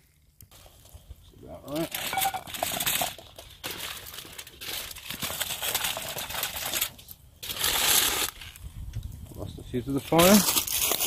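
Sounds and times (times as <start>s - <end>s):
aluminium foil crinkling: 1.6s - 8.7s, 9.8s - 11.0s.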